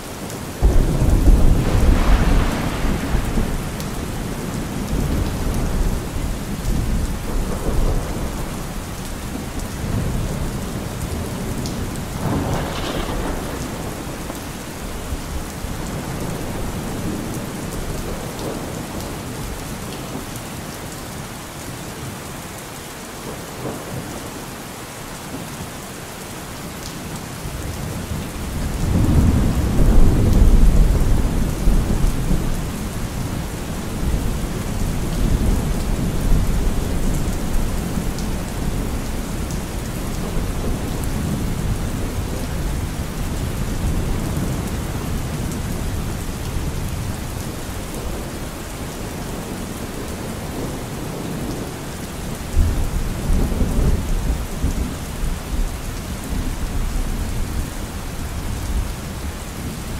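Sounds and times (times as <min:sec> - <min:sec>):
heavy rain: 0:00.0 - 0:59.9
rolling thunder: 0:00.6 - 0:19.0, 0:27.8 - 0:48.4.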